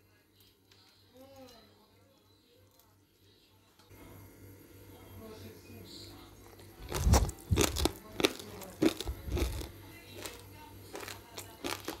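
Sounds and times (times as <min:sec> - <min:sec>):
crispy rice crunching when chewed: 0:06.4 - 0:12.0.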